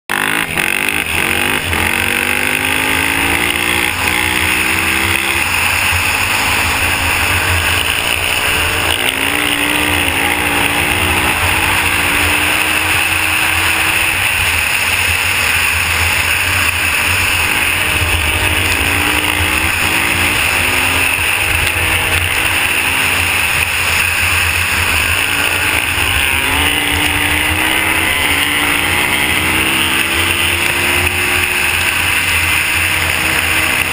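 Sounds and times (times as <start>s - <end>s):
dirt bike engine revving: 0.1s - 33.9s.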